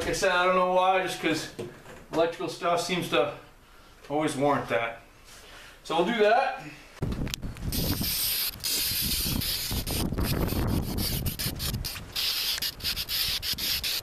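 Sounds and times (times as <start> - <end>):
spray paint can hissing: 7.7 - 14.0.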